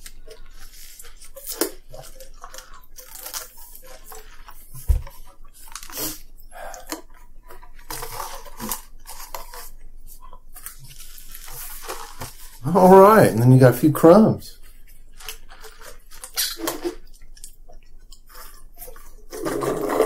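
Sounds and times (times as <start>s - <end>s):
chewing: 0.0s - 12.6s, 14.6s - 20.0s.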